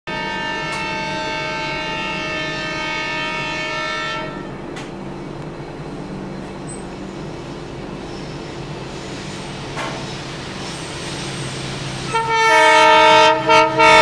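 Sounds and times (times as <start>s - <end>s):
locomotive horn blast: 0.1s - 4.7s, 12.0s - 14.0s
train rumbling: 0.1s - 14.0s.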